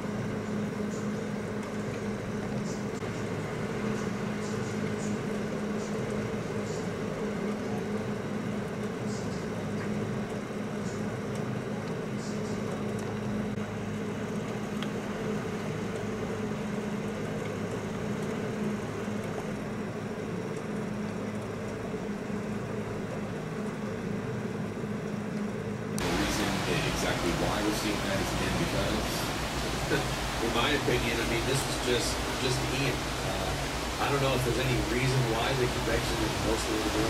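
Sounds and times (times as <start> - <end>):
low even hum: 0.0 - 37.0
gusty wind and rain: 13.1 - 37.0.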